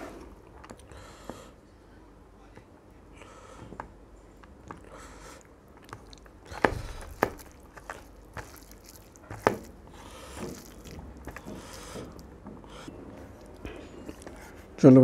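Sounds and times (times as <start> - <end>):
chewing: 4.4 - 14.8
fingers squishing rice and curry: 4.4 - 14.8.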